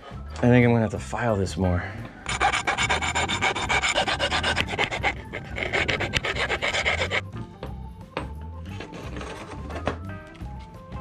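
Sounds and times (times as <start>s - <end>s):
metal file rasping on metal: 2.2s - 7.3s.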